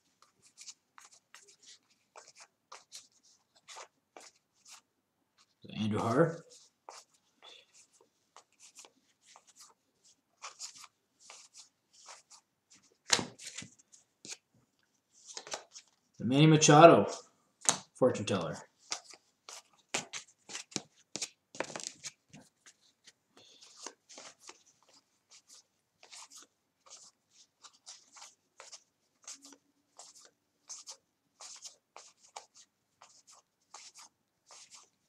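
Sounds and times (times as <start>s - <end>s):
cards flicking and sliding: 13.0s - 13.7s, 15.3s - 15.9s, 17.6s - 17.9s.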